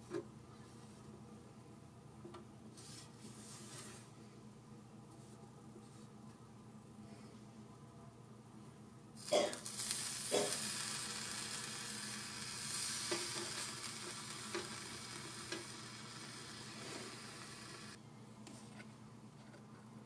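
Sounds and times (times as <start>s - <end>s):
meat sizzling in a pan: 9.2s - 18.0s.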